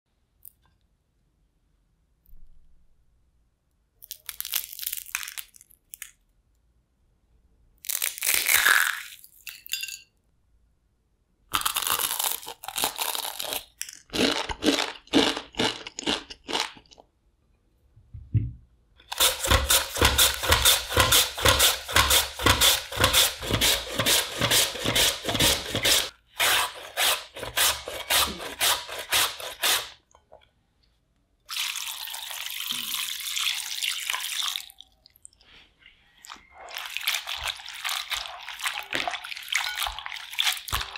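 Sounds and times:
fried potato crunching: 4.0s - 6.1s, 11.5s - 17.0s
potato shredded on mandoline: 19.1s - 30.0s.

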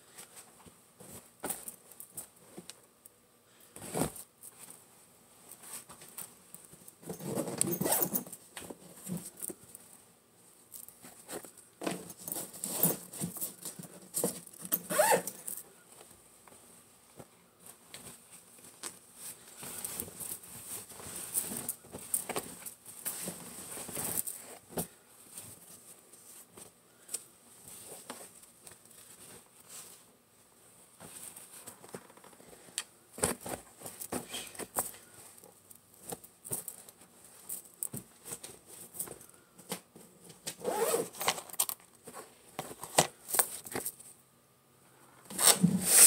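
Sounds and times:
fabric rustling: 3.7s - 39.2s, 40.6s - 41.3s.

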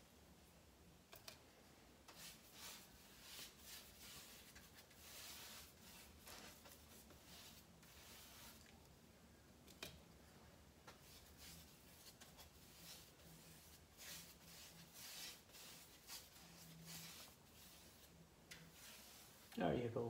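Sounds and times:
paintbrush swishing on wood: 2.1s - 8.7s, 10.9s - 19.6s.

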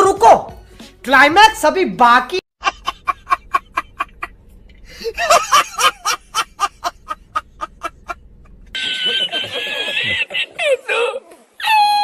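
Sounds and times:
laughing sound effect: 2.6s - 4.3s, 4.9s - 8.2s, 8.8s - 11.2s.

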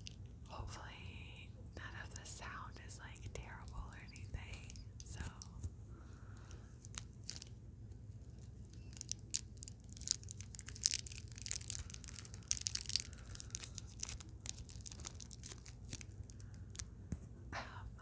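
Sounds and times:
plastic candy wrapper crinkling: 6.4s - 17.0s.

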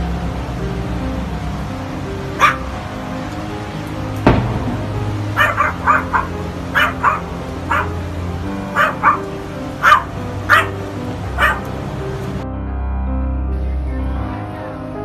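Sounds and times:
background music: 0.0s - 15.0s
dog barking: 2.4s - 2.7s, 5.3s - 8.0s, 8.7s - 10.8s, 11.4s - 11.7s.

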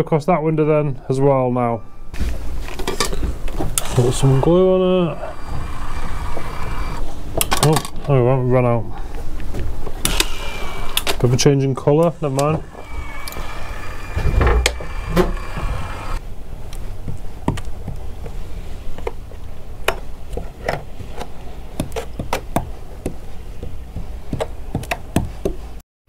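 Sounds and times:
electric caulking gun whirring: 3.8s - 7.0s, 10.0s - 11.2s, 12.0s - 16.2s.

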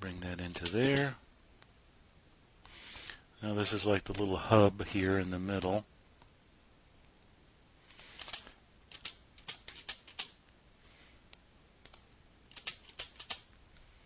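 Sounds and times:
keyboard typing: 0.2s - 1.1s, 7.9s - 10.4s, 11.8s - 13.5s.

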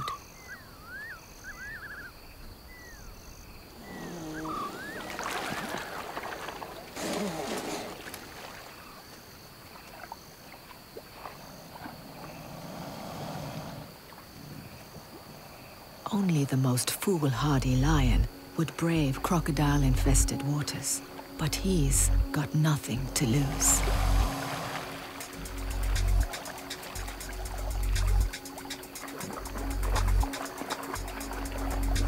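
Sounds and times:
insects calling in pulses: 0.0s - 32.0s
water splashing and sloshing: 3.3s - 16.1s, 19.2s - 32.0s.

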